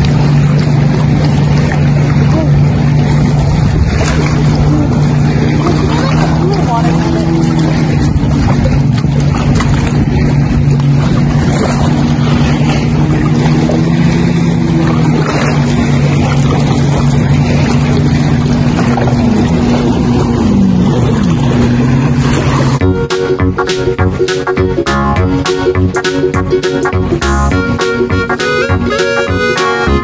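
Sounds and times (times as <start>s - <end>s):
motorboat engine running: 0.0s - 30.0s
rush of wind and water: 0.0s - 30.0s.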